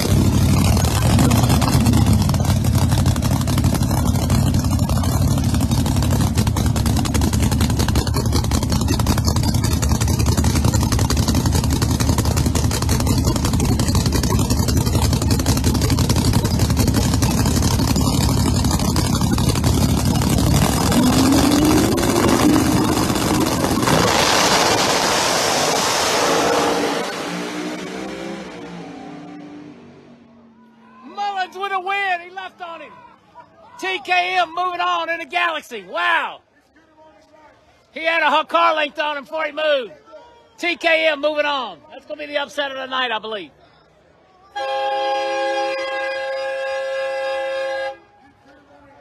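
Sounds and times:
race car engines idling: 0:00.0 - 0:25.8
engine revving up: 0:00.0 - 0:30.4
roar of cars launching: 0:17.3 - 0:30.2.

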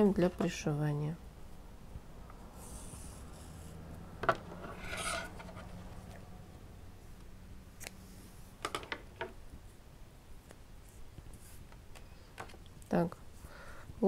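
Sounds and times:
short rasp: 0:04.7 - 0:05.6.

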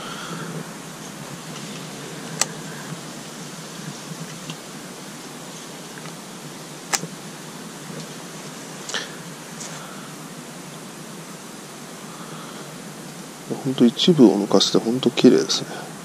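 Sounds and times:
steady background hiss: 0:00.0 - 0:16.0
sharp clicks: 0:01.0 - 0:03.0, 0:06.8 - 0:07.2.

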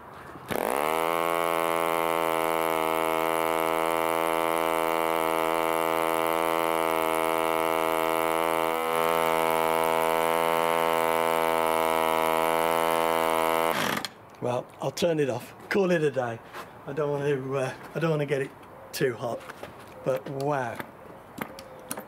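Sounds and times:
model aero engine running: 0:00.5 - 0:13.9.

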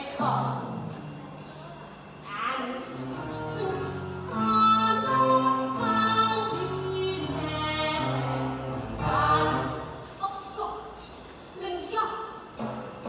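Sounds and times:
orchestra accompaniment: 0:02.6 - 0:10.2.

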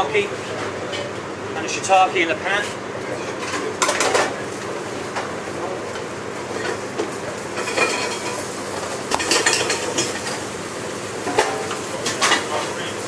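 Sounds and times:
steady background hum: 0:00.0 - 0:13.0
pan and utensils clattering: 0:03.2 - 0:04.4, 0:05.9 - 0:10.5, 0:11.2 - 0:12.8
food frying in a pan: 0:03.3 - 0:13.0.

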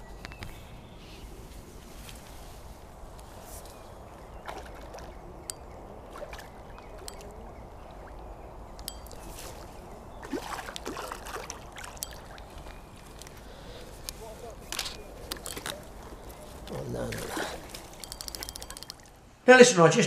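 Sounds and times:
water splashing and sloshing: 0:03.4 - 0:19.4
sharp clicks: 0:18.0 - 0:19.1.

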